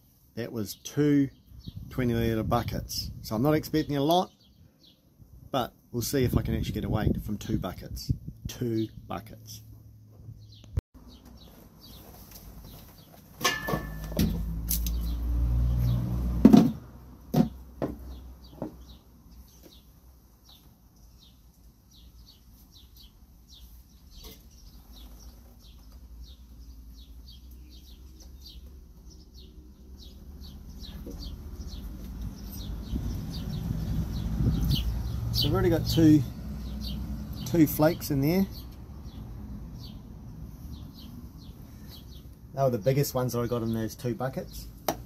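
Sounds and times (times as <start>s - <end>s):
plastic pans clattering: 13.3s - 14.4s
small bird chirping: 18.0s - 37.6s.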